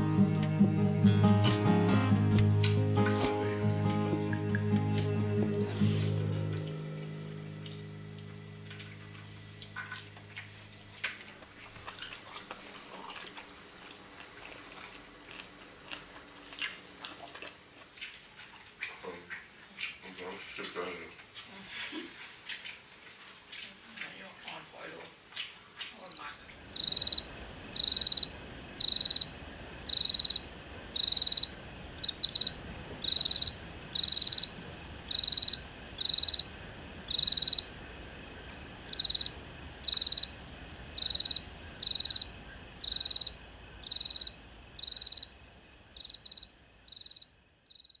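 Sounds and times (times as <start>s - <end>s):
faint high hum: 0.0s - 17.0s, 26.0s - 48.0s
cricket chirping: 26.0s - 37.8s, 38.8s - 48.0s.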